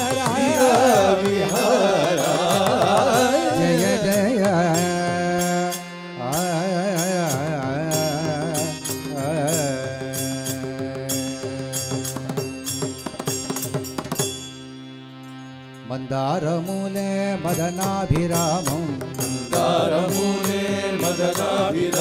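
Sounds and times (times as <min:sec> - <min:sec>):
ornamented devotional melody: 0:00.0 - 0:22.0
small hand cymbals striking: 0:07.3 - 0:14.6.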